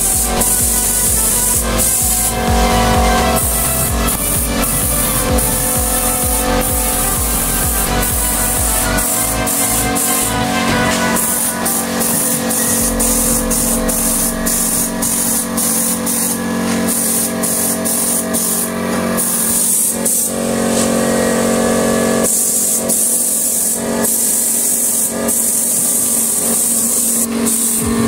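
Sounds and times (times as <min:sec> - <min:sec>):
background music: 0:00.0 - 0:16.0
spray gun hissing: 0:00.0 - 0:28.0.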